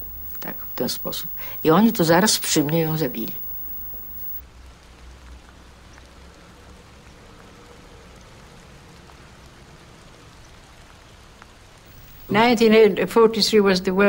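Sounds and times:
low hum: 0:00.0 - 0:04.4, 0:11.9 - 0:13.1
faint steady hiss: 0:00.0 - 0:14.0.

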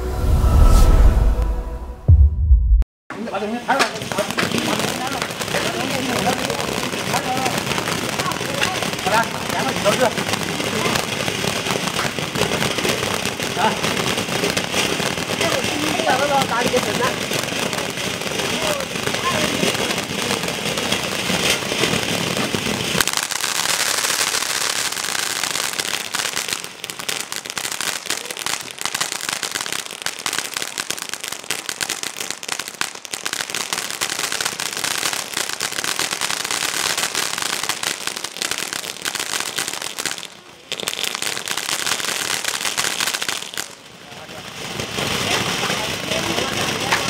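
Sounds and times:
firework fountain hissing and crackling: 0:03.1 - 0:47.0.

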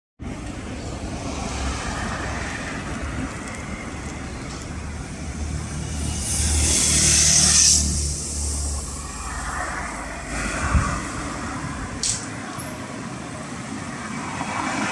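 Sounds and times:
rumble of passing vehicles: 0:00.2 - 0:14.9
vehicle passing close: 0:01.1 - 0:12.5.

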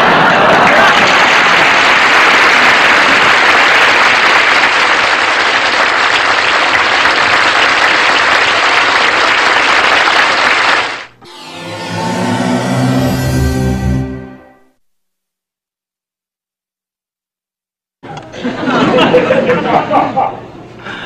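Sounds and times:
audience applauding: 0:00.0 - 0:12.8
music sting: 0:11.2 - 0:14.8.

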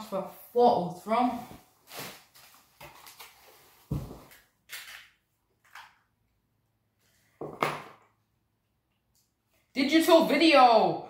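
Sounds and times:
handling knocks and rustles: 0:01.4 - 0:04.5.

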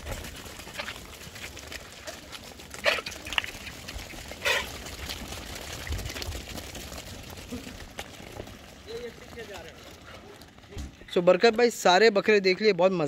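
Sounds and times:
goat herd moving: 0:00.0 - 0:13.0
loud animal calls: 0:02.7 - 0:04.9.

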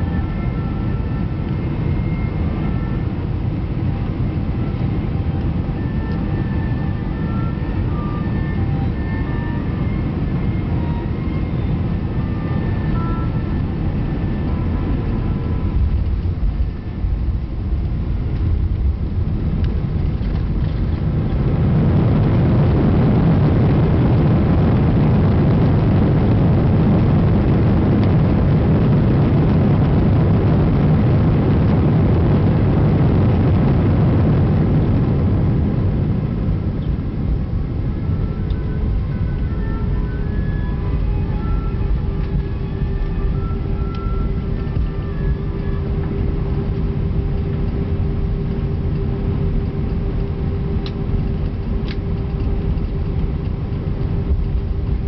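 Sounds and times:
aircraft cabin engine noise: 0:00.0 - 0:55.0
engines roaring in reverse thrust: 0:04.6 - 0:55.0.

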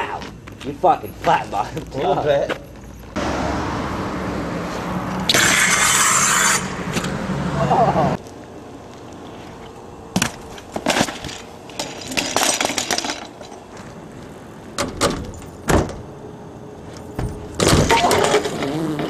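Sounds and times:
bike crashing on pavement: 0:10.1 - 0:13.4, 0:17.2 - 0:18.7.

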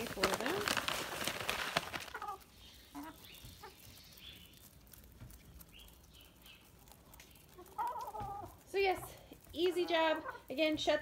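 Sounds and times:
hens clucking: 0:01.5 - 0:05.2, 0:06.4 - 0:10.9.

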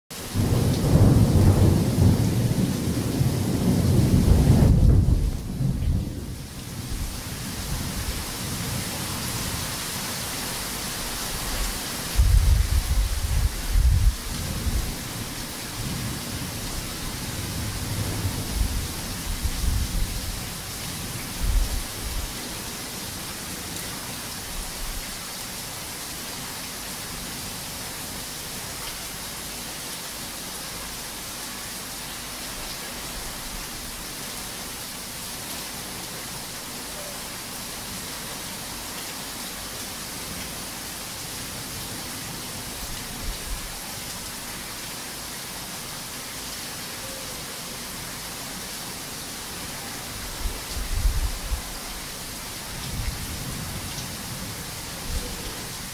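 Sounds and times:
heavy rain hissing: 0:00.2 - 0:55.9
thunder rumbling: 0:00.4 - 0:06.4.

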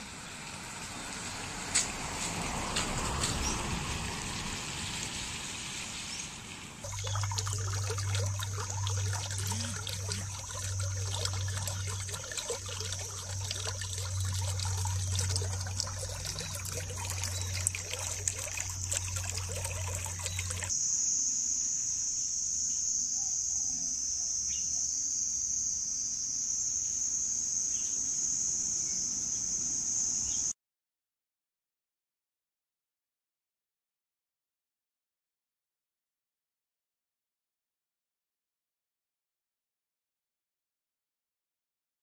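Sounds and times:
floodwater churning and gurgling: 0:00.4 - 0:20.7
steady low hum: 0:06.8 - 0:20.8.

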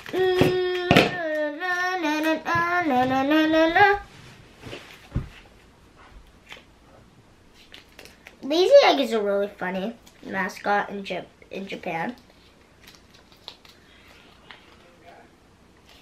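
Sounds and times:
girl singing: 0:00.0 - 0:04.1.

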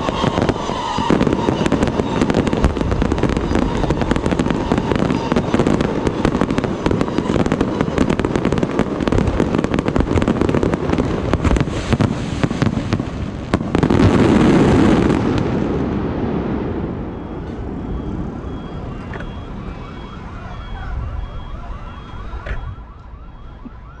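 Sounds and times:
fireworks bursting and crackling: 0:00.0 - 0:19.6
repeating electronic beep: 0:00.5 - 0:08.4, 0:17.0 - 0:23.9.

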